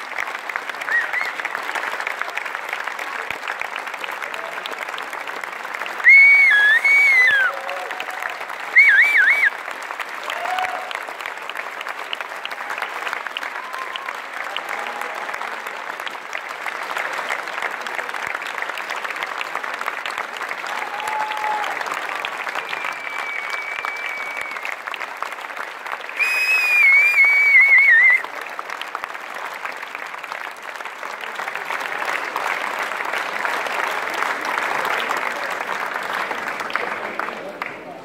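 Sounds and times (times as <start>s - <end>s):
audience clapping: 0.0s - 38.0s
long held whistle: 6.1s - 7.5s, 8.8s - 9.5s, 22.7s - 24.6s, 26.2s - 28.2s
short calls from audience: 20.6s - 24.8s, 26.1s - 28.4s
loud warbling whistle: 22.8s - 24.6s.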